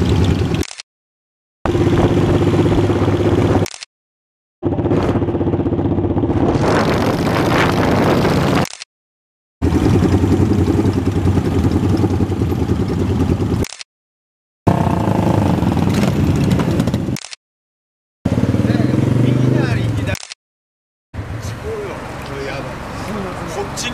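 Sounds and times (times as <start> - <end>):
motorcycle engine running: 0.0 - 0.6, 1.7 - 3.7, 4.6 - 8.6, 9.6 - 13.7, 14.7 - 17.2, 18.3 - 20.1.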